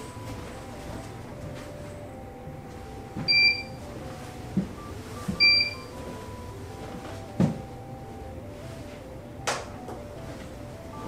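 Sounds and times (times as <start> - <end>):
soft background music: 0.0 - 11.0
footsteps on floor: 2.7 - 7.8
high electronic beeps: 3.2 - 3.8, 4.8 - 6.6.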